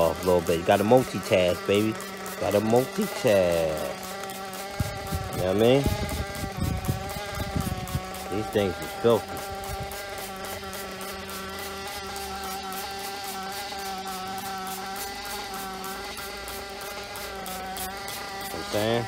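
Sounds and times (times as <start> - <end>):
nitro engine high buzzing drone: 0.0 - 19.0.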